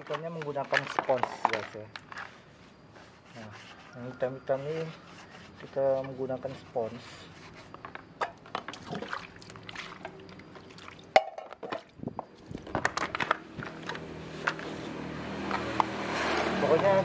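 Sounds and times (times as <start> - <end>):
water sloshing: 8.2 - 14.0.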